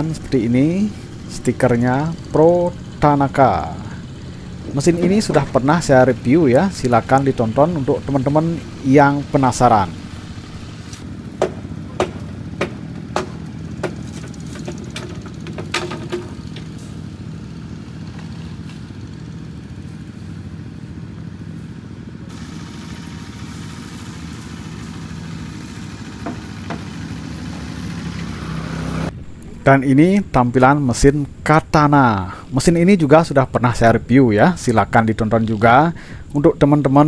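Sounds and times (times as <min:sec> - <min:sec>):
small engine idling: 0:00.0 - 0:29.2.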